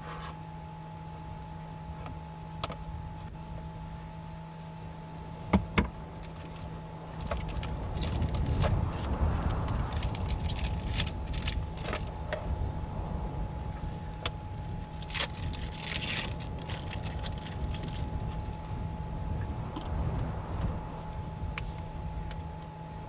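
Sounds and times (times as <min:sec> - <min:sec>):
rustling and shuffling in a car: 0:00.0 - 0:00.5, 0:05.1 - 0:23.0
faint steady hum: 0:00.0 - 0:23.0.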